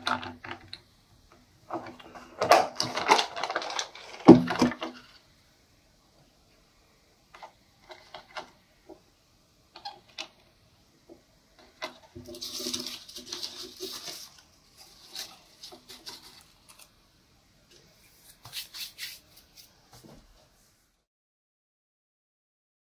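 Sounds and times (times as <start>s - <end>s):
rustling scrape: 11.6s - 17.0s, 17.8s - 20.9s.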